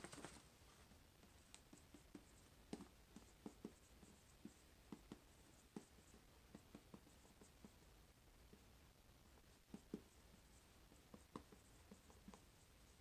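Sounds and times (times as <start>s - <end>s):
marker scratching on whiteboard: 1.2s - 7.9s, 9.3s - 13.0s.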